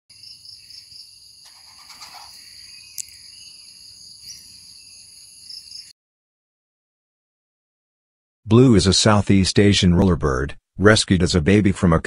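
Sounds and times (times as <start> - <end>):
chorus of insects: 0.1 - 5.9.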